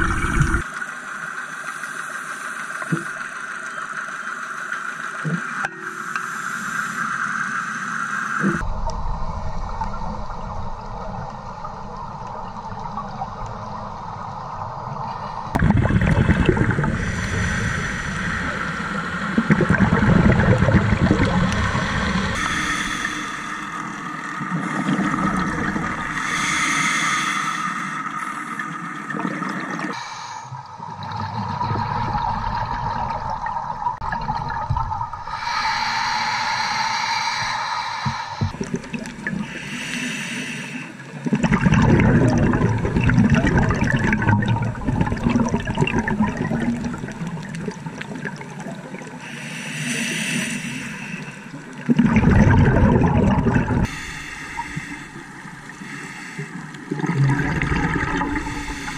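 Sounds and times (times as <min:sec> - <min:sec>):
bubbles gurgling underwater: 0:00.0 - 0:00.7, 0:15.5 - 0:17.5, 0:18.4 - 0:22.4, 0:23.9 - 0:26.2, 0:30.9 - 0:35.4, 0:38.4 - 0:39.5, 0:41.2 - 0:49.2, 0:51.5 - 0:53.9, 0:56.7 - 0:58.9
scuba regulator breathing: 0:16.8 - 0:19.3, 0:21.4 - 0:28.9, 0:29.9 - 0:30.7, 0:35.2 - 0:41.2, 0:49.2 - 0:51.8, 0:53.4 - 0:58.9.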